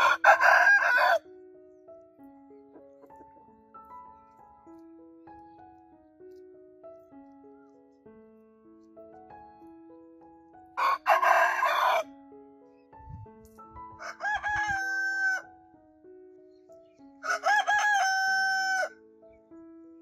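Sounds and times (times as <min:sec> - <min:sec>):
rooster crowing: 0:00.0 - 0:01.2, 0:10.8 - 0:12.1, 0:14.0 - 0:15.5, 0:17.2 - 0:19.0.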